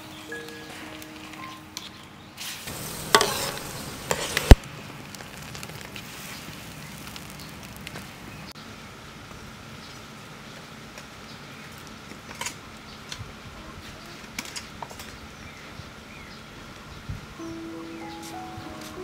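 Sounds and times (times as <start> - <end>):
ladle stirring and scraping: 2.7 - 4.6
sauce sizzling and bubbling: 2.7 - 8.0
ladle clinking against wok: 2.8 - 4.6.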